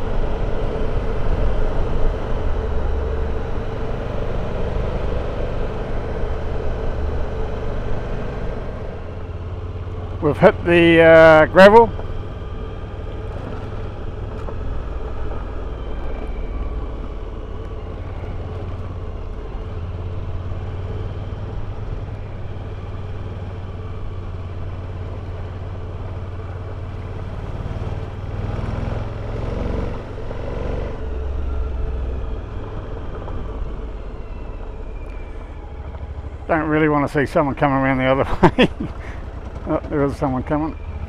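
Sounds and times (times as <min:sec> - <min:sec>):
motorcycle engine running: 0:00.0 - 0:28.4, 0:36.6 - 0:41.0
tyres on gravel road: 0:00.0 - 0:41.0.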